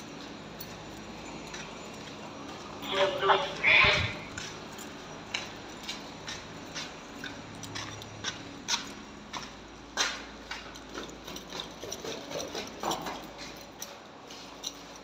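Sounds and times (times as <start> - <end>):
footsteps scuffing on concrete: 0.0 - 11.6.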